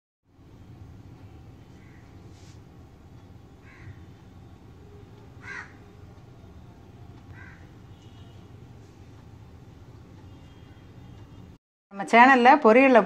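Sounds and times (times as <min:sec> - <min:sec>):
bird calling: 0:03.6 - 0:04.2, 0:05.4 - 0:06.0, 0:07.3 - 0:08.2.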